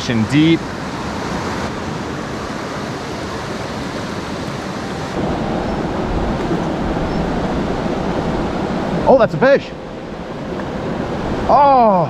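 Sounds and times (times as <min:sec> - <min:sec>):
river rushing through rapids: 0:00.0 - 0:12.0.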